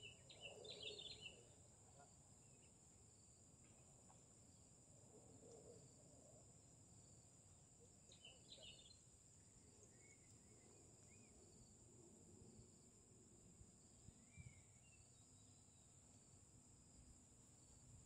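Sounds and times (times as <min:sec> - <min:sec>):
bird chirps: 0:00.0 - 0:01.5, 0:08.1 - 0:09.0
crickets droning: 0:00.0 - 0:18.0.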